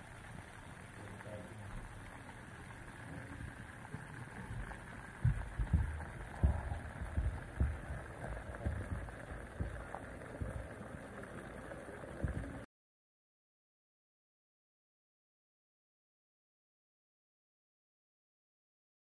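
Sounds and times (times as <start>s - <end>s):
steady hiss: 0.0s - 12.6s
muffled underwater thumps: 3.3s - 11.6s, 12.2s - 12.6s.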